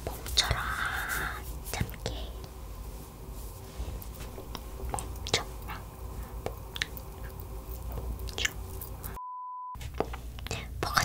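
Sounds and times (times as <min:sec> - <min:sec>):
low hum: 0:00.0 - 0:09.3
mouth clicks and smacks: 0:06.4 - 0:09.2.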